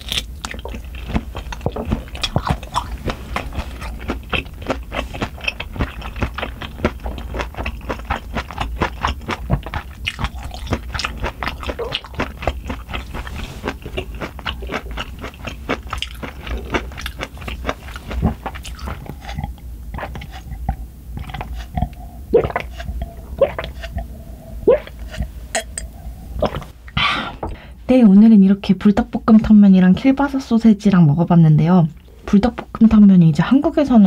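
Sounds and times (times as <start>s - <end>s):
person chewing food: 0.0s - 26.8s
gulps of water: 21.7s - 25.3s.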